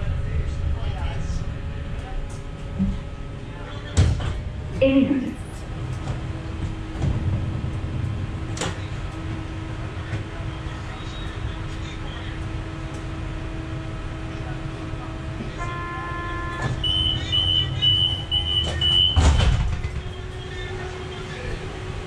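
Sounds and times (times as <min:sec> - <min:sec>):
tram equipment humming: 0:00.0 - 0:22.0
tram doors shutting thump: 0:03.8 - 0:10.6, 0:16.3 - 0:20.7
high warning beeps: 0:16.2 - 0:19.4.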